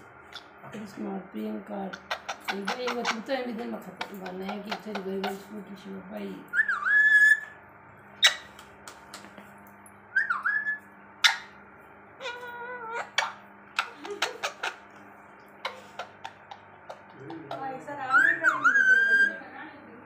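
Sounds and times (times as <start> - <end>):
parrot squeaky call: 1.9 - 3.3, 6.5 - 7.6, 8.2 - 8.5, 10.2 - 11.6, 12.2 - 14.8, 15.6 - 19.4
parrot whistling: 1.9 - 3.3, 6.5 - 7.6, 8.2 - 8.5, 10.1 - 11.6, 12.2 - 14.8, 15.6 - 19.5.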